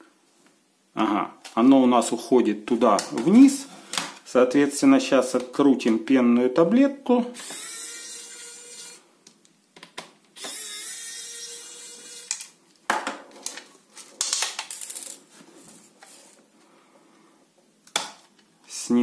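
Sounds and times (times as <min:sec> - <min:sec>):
electric screwdriver whirring: 0:07.4 - 0:09.0, 0:10.4 - 0:12.5.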